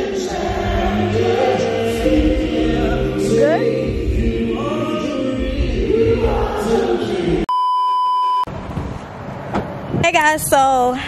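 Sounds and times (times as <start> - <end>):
choir singing with instruments: 0.0 - 7.5
electronic beep: 7.5 - 8.5.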